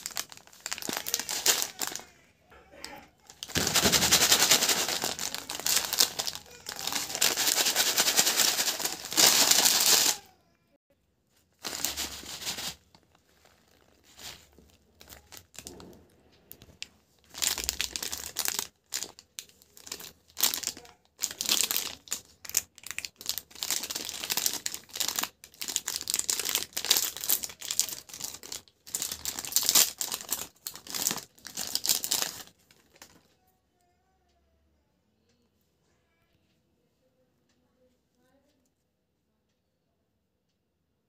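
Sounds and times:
plastic wrapper tearing: 0:00.0 - 0:02.2, 0:02.8 - 0:10.3, 0:11.5 - 0:15.9, 0:16.5 - 0:33.2
plastic wrappers crinkling: 0:00.0 - 0:10.3, 0:11.5 - 0:15.9, 0:16.5 - 0:33.3.

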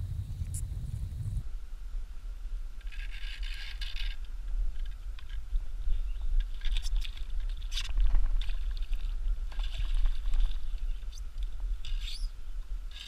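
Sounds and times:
low rumble: 0:00.0 - 0:01.6.

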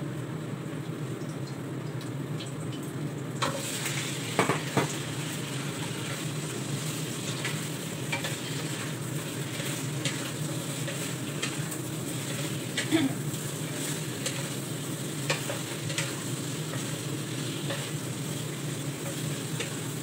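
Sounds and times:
chicken sizzling in oil: 0:00.1 - 0:20.0
pieces knocking into wok: 0:04.3 - 0:05.0.

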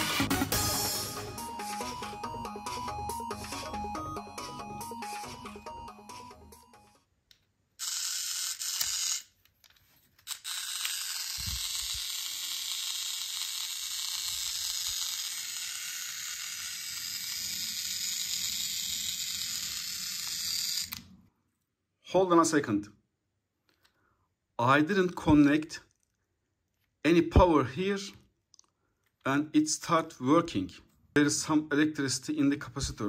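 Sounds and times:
toy motor whirring: 0:07.8 - 0:09.5, 0:10.1 - 0:21.1.

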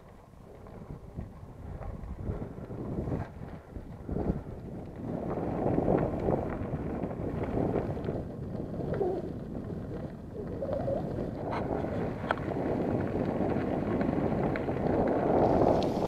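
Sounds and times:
wind on microphone: 0:00.0 - 0:16.0
dove cooing: 0:08.9 - 0:09.3, 0:10.4 - 0:11.9.

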